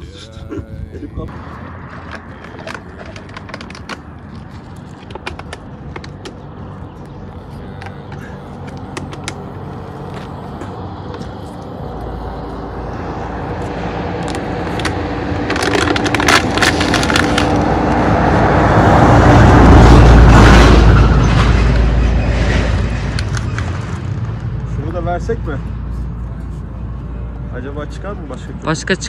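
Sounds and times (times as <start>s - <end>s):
vehicle engine and tyre rumble: 0.0s - 29.0s
sharp crackles: 14.2s - 18.0s, 21.2s - 25.3s.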